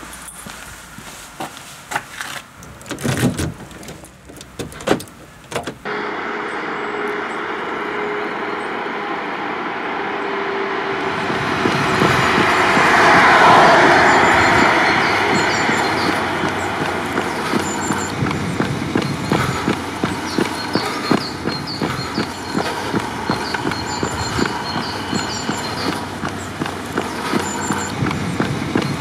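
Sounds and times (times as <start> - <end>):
car driving over asphalt: 2.4 - 29.0
car door opening clicks: 2.7 - 5.9.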